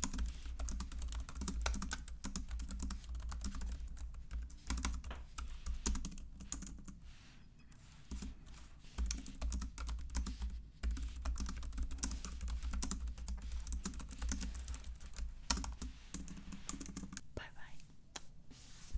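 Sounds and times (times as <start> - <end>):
fast keyboard typing: 0.0 - 7.0, 8.1 - 17.2.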